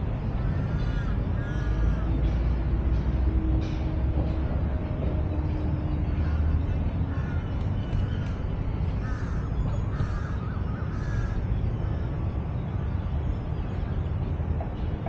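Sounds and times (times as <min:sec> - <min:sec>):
steady low rumble: 0:00.0 - 0:15.0
crows cawing: 0:00.4 - 0:02.4, 0:06.0 - 0:08.3, 0:09.0 - 0:12.2.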